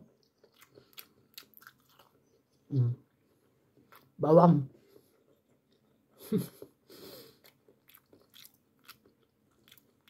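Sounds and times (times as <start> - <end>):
person chewing wetly: 0.0 - 2.7, 3.8 - 4.2, 7.3 - 10.0.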